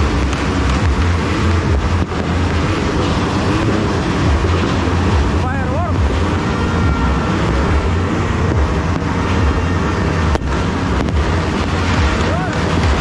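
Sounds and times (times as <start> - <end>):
firecrackers and fireworks roar: 0.0 - 13.0.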